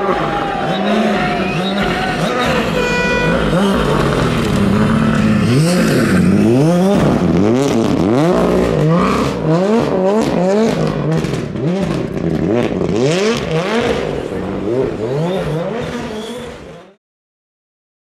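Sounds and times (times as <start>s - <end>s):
rally car engine revving: 0.0s - 17.0s
sharp engine crackles: 0.4s - 9.4s.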